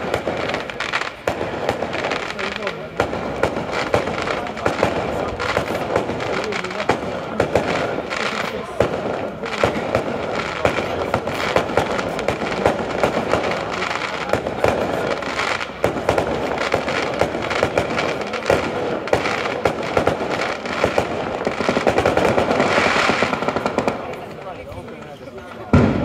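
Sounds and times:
firecrackers rattling: 0.0 - 26.0.

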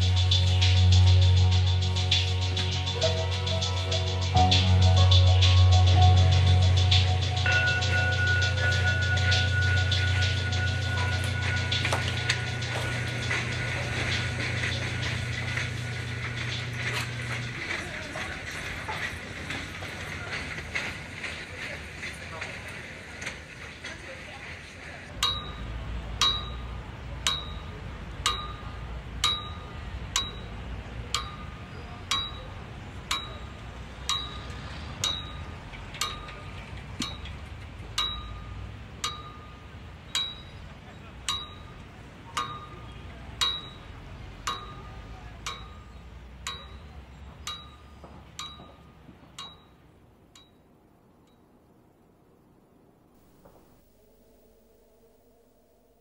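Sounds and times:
low rumble: 0.0 - 20.8.

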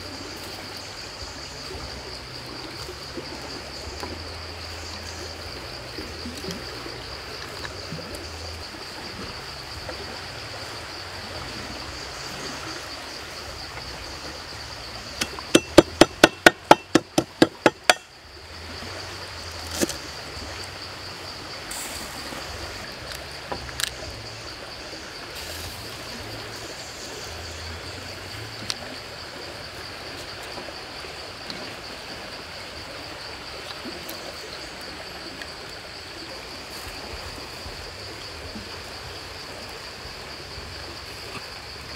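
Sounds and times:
high insect drone: 0.0 - 41.9
knife chopping on wooden board: 15.2 - 18.0.

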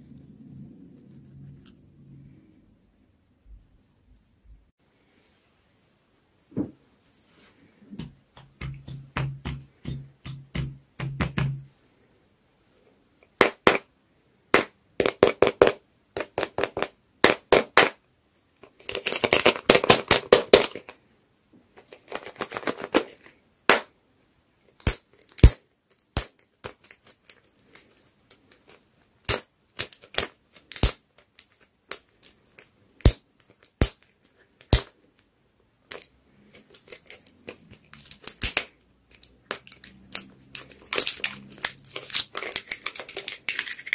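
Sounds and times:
tape crackling: 35.9 - 43.9.

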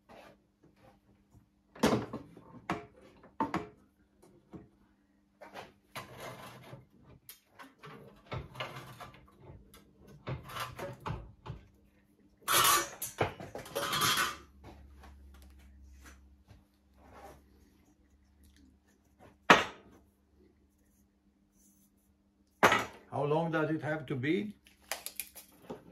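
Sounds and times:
metal strip scraping and rattling: 6.0 - 9.2, 12.4 - 14.4.

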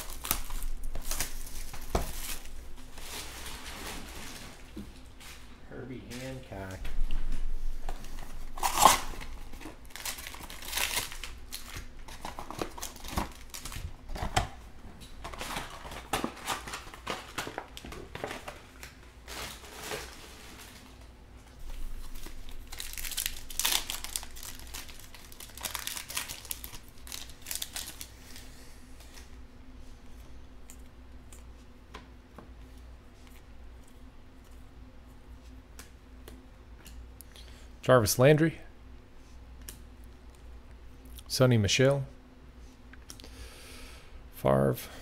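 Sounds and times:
foil pack tearing: 0.0 - 4.5, 8.5 - 14.4, 15.3 - 21.0, 22.0 - 28.1
foil packs crinkling: 0.0 - 4.8, 8.1 - 28.5.

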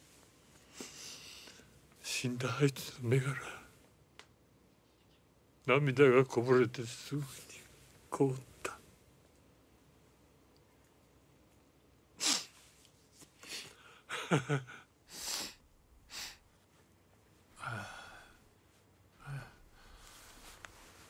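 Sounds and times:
man weeping: 14.1 - 14.9.

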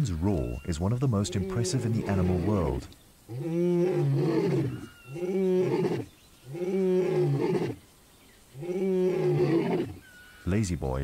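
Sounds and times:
lion roaring: 1.2 - 7.8, 8.6 - 10.0.

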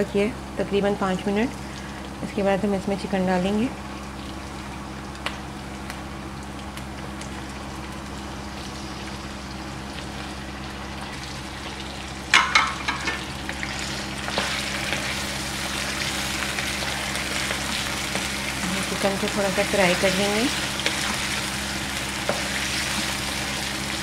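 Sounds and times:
chicken sizzling in hot oil: 3.5 - 24.0
spatula knocking against pan: 12.3 - 13.2.

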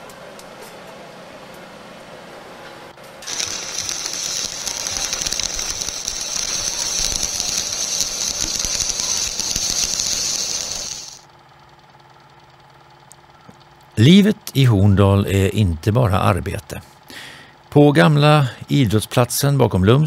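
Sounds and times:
welding arc crackling and hissing: 3.2 - 11.3.

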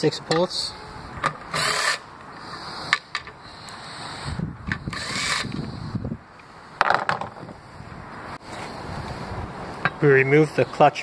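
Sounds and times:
rustling scrape: 8.4 - 9.2.

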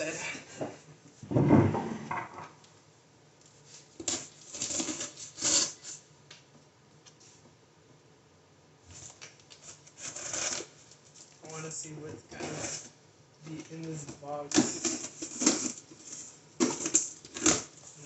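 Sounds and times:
knife slitting packing tape: 4.0 - 6.0, 10.0 - 10.7, 14.5 - 18.0.

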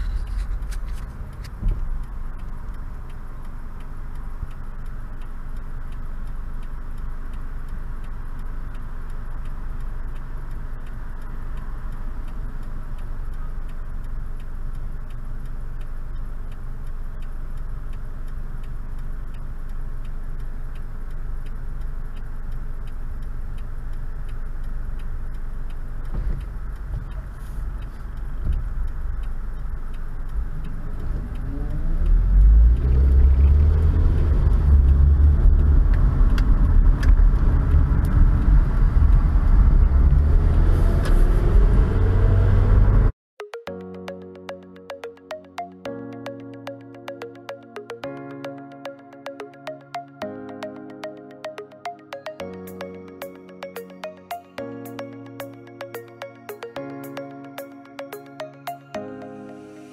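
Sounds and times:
light regular ticking: 0.0 - 38.2, 43.4 - 59.6
car accelerating with road noise: 0.0 - 43.1
car engine rumble: 0.0 - 43.1.

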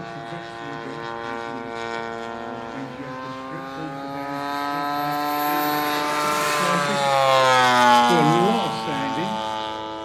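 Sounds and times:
model aircraft engine drone: 0.0 - 10.0.

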